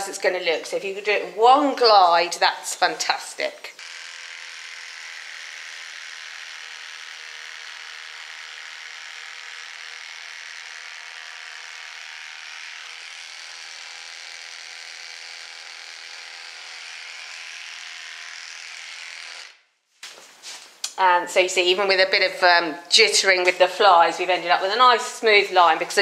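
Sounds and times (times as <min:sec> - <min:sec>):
electric clippers buzzing: 0:00.0 - 0:19.7.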